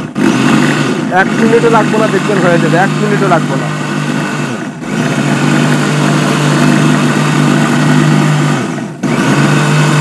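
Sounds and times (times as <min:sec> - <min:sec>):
mixer grinder motor running: 0:00.0 - 0:10.0.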